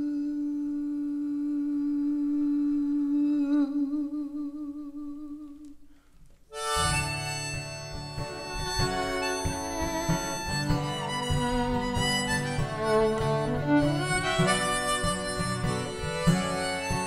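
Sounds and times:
harmonica chords: 6.5 - 17.0.

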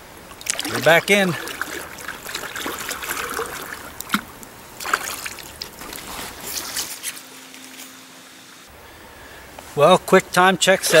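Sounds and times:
stream water running and splashing: 0.0 - 7.3
short splashes and knocks: 0.3 - 7.0.

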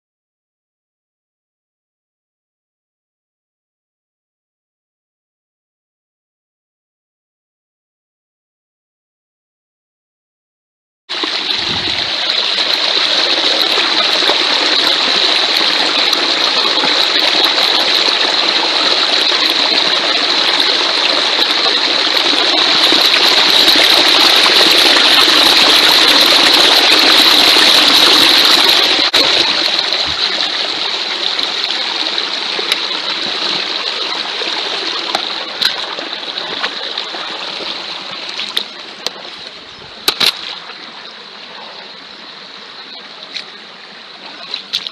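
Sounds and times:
stream rushing over rocks: 11.1 - 44.9.

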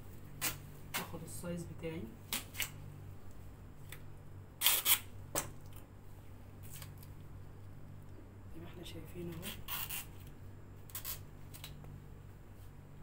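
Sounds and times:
tape being torn off roll: 4.6 - 5.5, 9.4 - 10.3, 10.9 - 11.8.

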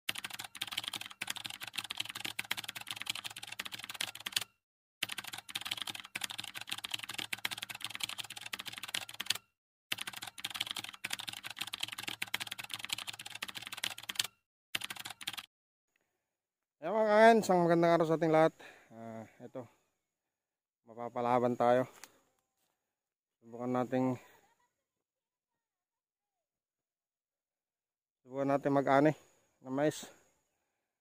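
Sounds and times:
keyboard typing clicks: 0.1 - 15.5.

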